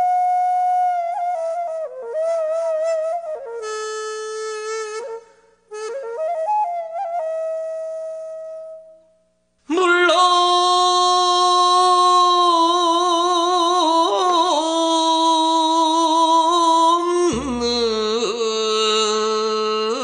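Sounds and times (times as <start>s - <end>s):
person singing long held notes: 9.7s - 20.0s.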